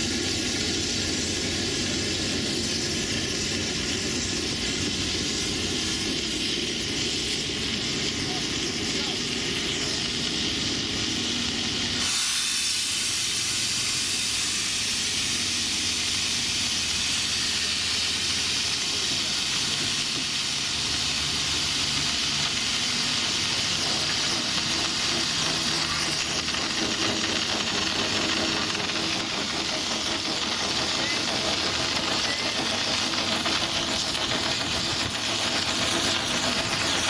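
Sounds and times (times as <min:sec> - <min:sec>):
steam locomotive venting steam: 0:00.0 - 0:37.0.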